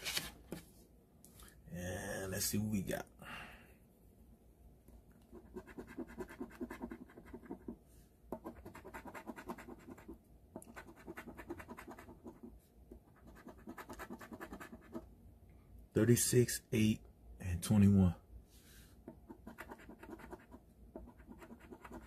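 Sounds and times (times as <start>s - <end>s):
scratching lottery ticket: 5.4s - 7.6s, 8.5s - 12.5s, 13.2s - 15.0s, 19.3s - 22.0s.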